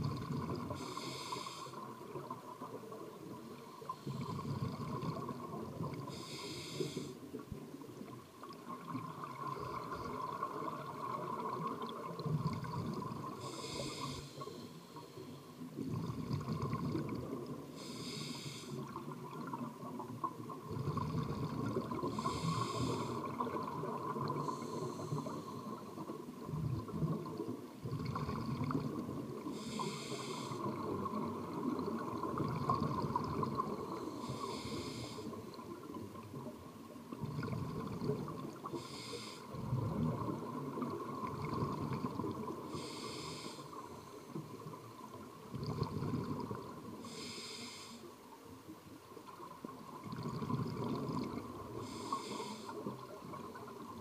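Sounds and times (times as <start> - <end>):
regulator hiss on inhale: 0.0 - 7.5, 12.2 - 19.7, 20.7 - 26.3, 27.8 - 36.0, 37.3 - 40.2, 42.3 - 48.3, 50.4 - 53.3.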